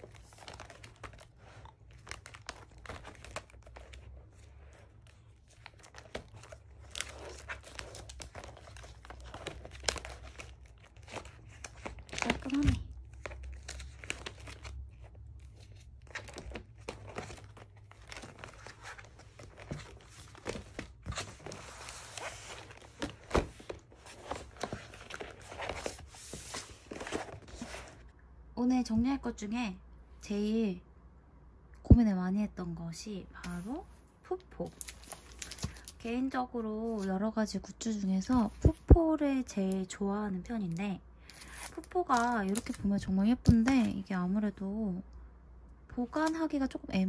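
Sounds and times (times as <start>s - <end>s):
plastic pages rustling: 0.0s - 28.1s, 34.6s - 37.2s, 41.2s - 44.1s.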